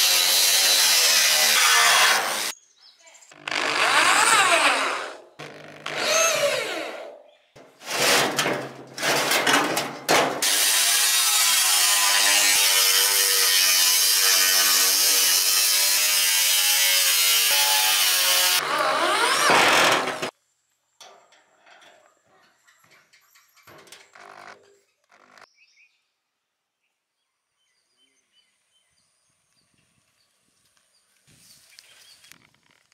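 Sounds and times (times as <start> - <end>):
angle grinder cutting steel: 0.0 - 2.6, 3.4 - 7.2, 10.2 - 20.3
power drill driving screws: 3.4 - 7.1, 16.7 - 20.3.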